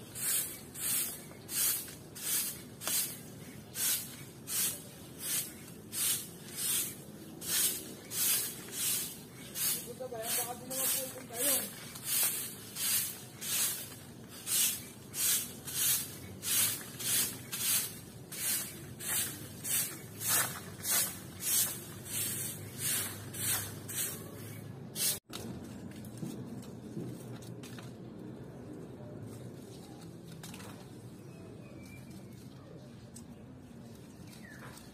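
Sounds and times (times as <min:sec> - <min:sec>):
broom sweeping concrete: 0:00.0 - 0:25.3.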